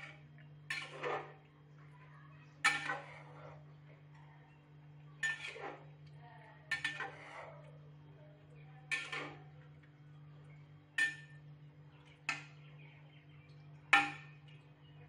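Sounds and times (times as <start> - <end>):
metal spoon clinking on pot: 2.6 - 3.2, 5.2 - 5.6, 6.7 - 7.3, 8.9 - 9.5, 11.0 - 11.4, 14.0 - 14.6.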